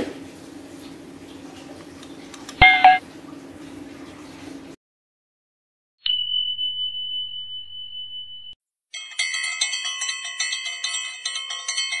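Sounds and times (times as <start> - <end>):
rapid ringing bell notes: 2.6 - 3.0, 6.1 - 12.0
steady high ding: 2.6 - 3.0.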